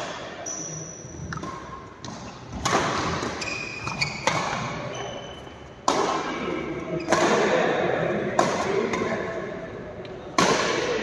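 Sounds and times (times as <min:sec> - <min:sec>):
shoe squeaks: 0:00.4 - 0:02.5, 0:03.2 - 0:05.8
racket hitting shuttlecock: 0:01.3 - 0:05.1, 0:05.8 - 0:09.2, 0:10.3 - 0:11.0.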